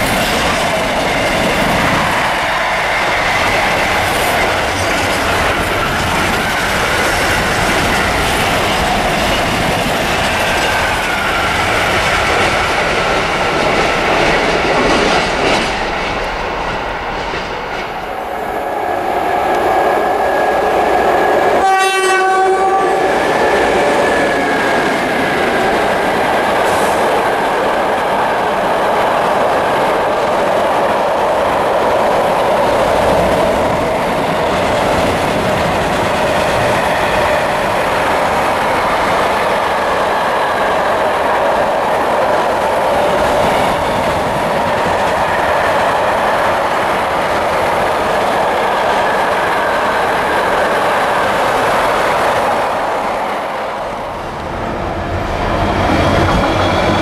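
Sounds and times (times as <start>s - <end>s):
locomotive horn: 21.6s - 23.2s.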